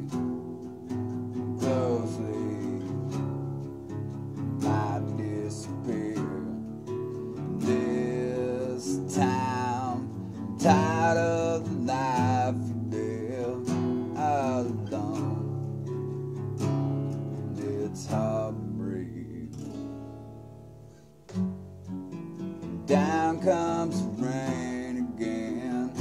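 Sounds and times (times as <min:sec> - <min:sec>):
person singing: 0:00.0 - 0:00.2, 0:01.5 - 0:16.0, 0:17.1 - 0:19.8, 0:22.8 - 0:26.0
acoustic guitar strumming: 0:00.0 - 0:26.0.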